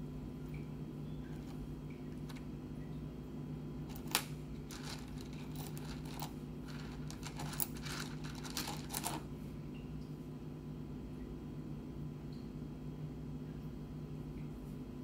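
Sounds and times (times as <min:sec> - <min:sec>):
steady low hum: 0:00.0 - 0:15.0
stones clicking and rustling: 0:03.9 - 0:09.3.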